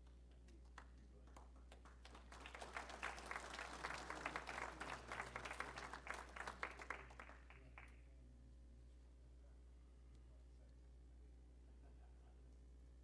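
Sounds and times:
audience applauding: 1.8s - 8.0s.

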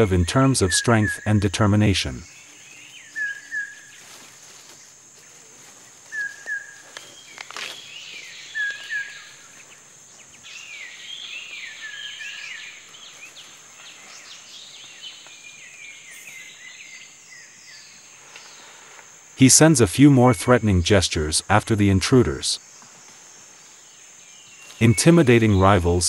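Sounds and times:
bird calling: 0.0s - 18.9s.

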